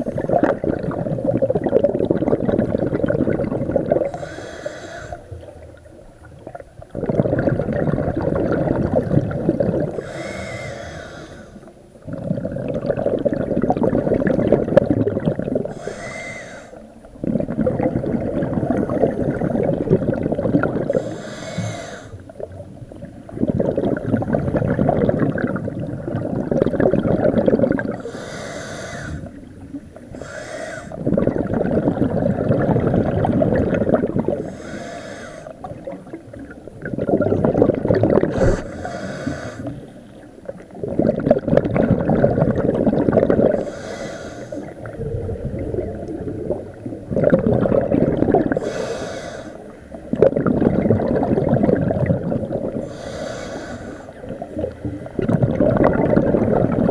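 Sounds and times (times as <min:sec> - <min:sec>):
exhaled air bubbling: 0:00.0 - 0:56.9
regulator inhale hiss: 0:04.0 - 0:05.4, 0:09.9 - 0:11.8, 0:15.7 - 0:16.9, 0:20.9 - 0:22.2, 0:28.0 - 0:29.4, 0:30.1 - 0:31.0, 0:34.4 - 0:35.7, 0:38.3 - 0:40.0, 0:43.5 - 0:44.9, 0:48.5 - 0:50.0, 0:52.8 - 0:54.8.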